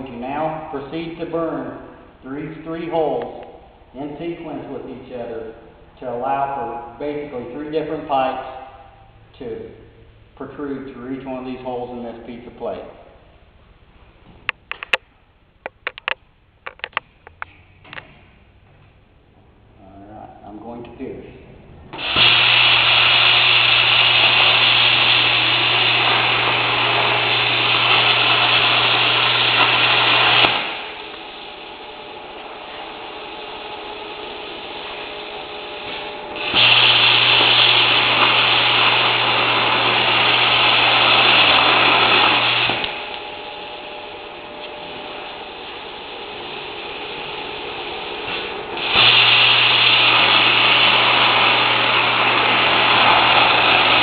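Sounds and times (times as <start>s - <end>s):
plasma cutter hissing arc: 21.9s - 43.2s, 44.8s - 54.0s.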